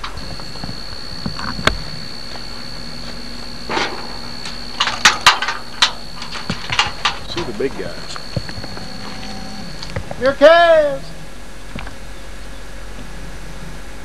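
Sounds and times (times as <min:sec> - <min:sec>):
steady high whine: 0:00.0 - 0:14.0
sharp clicks and knocks: 0:03.7 - 0:08.9.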